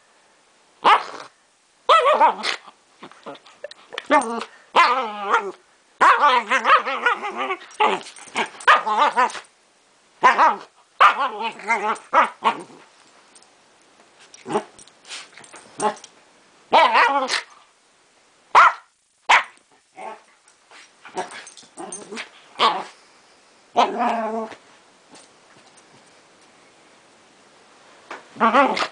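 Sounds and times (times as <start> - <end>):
small dog play-growling: 2.1 - 9.5, 10.2 - 12.9, 14.4 - 16.1, 19.9 - 23.0, 23.7 - 25.3, 28.3 - 28.9.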